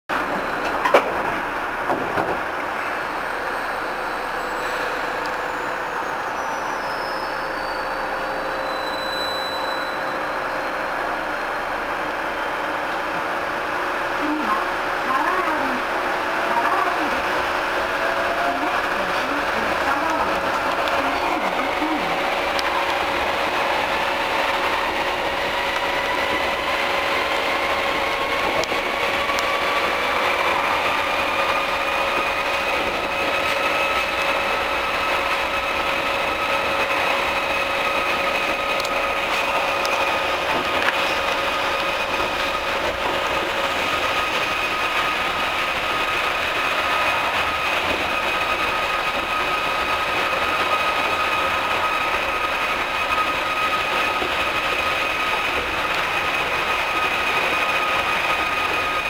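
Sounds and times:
traction motors whining: 0.2s - 59.0s
rubber tyres running on track: 18.5s - 59.0s.

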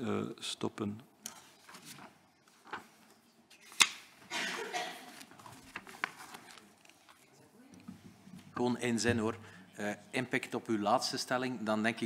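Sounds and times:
paper rustling: 1.3s - 4.1s, 5.0s - 7.3s.

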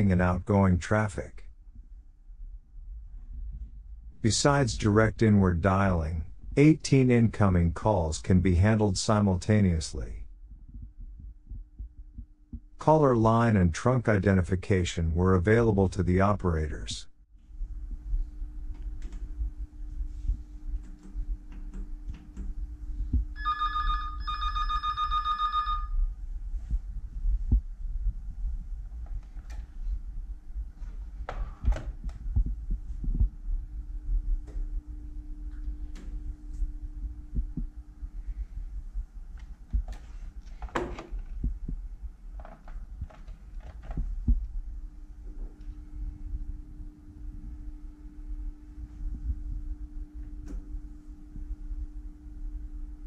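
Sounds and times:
low hum: 0.0s - 53.0s
telephone ringing: 23.4s - 26.1s.

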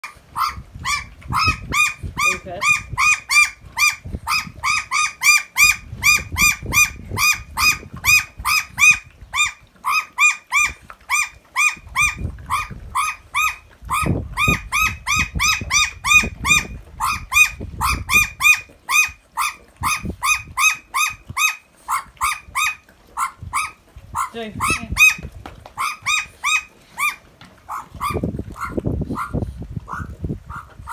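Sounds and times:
magpie squawking: 0.4s - 30.9s
dogs eating from a pan: 7.4s - 14.8s, 20.8s - 30.9s.

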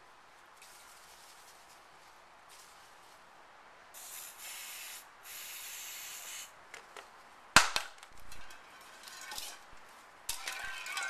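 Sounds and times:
aerosol can spraying: 4.0s - 6.5s.

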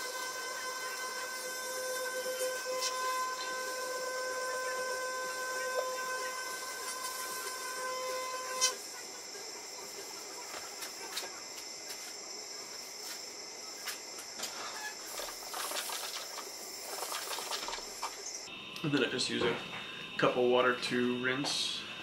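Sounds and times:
electric toothbrush buzzing: 0.0s - 12.2s, 15.0s - 18.4s.

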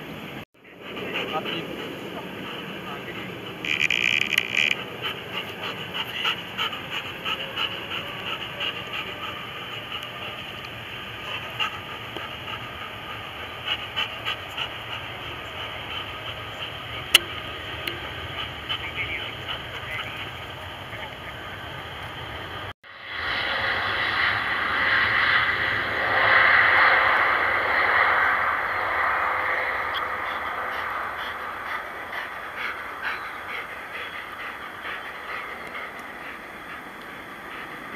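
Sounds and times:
jet engines rushing: 0.0s - 37.9s
faint ticks: 3.7s - 4.8s.

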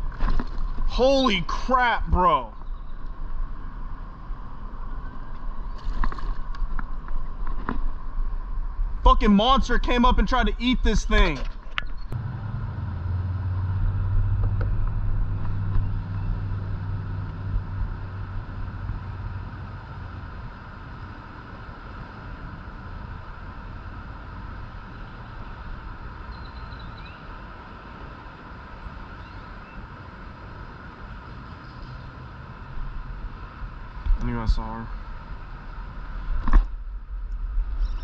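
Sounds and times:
passing vehicle engine rumble: 12.1s - 27.8s.

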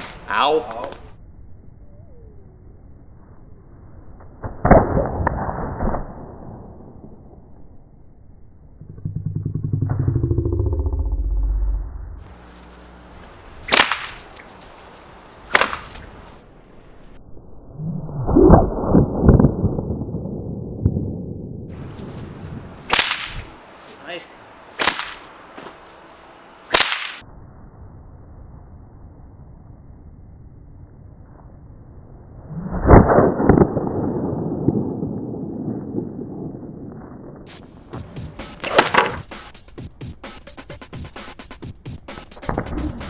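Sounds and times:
whip cracking: 0.0s - 1.1s, 13.6s - 14.7s, 15.5s - 16.4s, 22.8s - 23.6s, 24.7s - 25.8s, 26.7s - 27.2s, 38.4s - 39.5s
low pulsing drone: 6.2s - 13.7s
whip swishing: 13.6s - 14.8s, 15.5s - 16.4s, 22.8s - 23.6s, 24.8s - 25.8s, 26.7s - 27.2s, 38.4s - 39.4s.

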